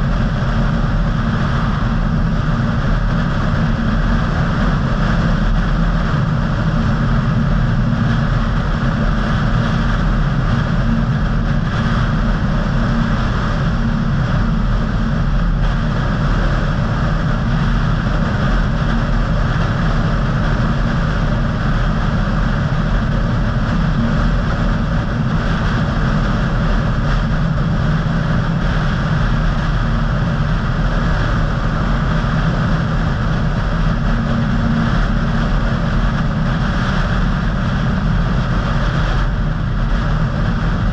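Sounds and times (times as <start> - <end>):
car road and engine rumble: 0.0 - 40.9.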